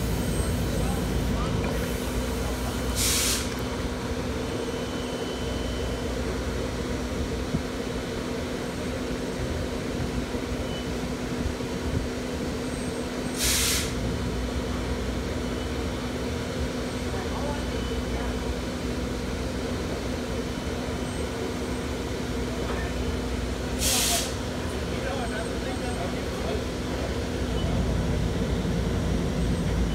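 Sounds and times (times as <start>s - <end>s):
short burst of hiss: 2.9s - 3.5s, 13.4s - 14.0s, 23.8s - 24.4s.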